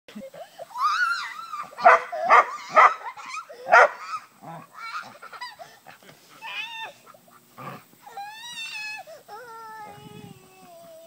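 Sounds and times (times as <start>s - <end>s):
dog barking: 1.8s - 3.0s, 3.7s - 4.0s.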